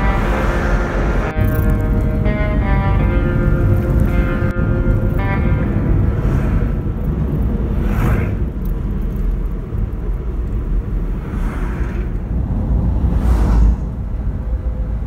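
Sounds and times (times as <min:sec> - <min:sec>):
road rumble: 0:00.0 - 0:15.0
trucks passing whoosh: 0:00.0 - 0:15.0.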